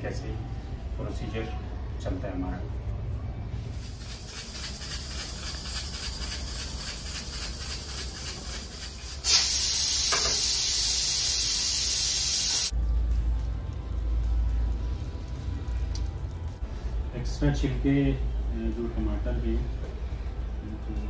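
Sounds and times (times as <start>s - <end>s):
steam rushing from valve: 3.8s - 12.7s.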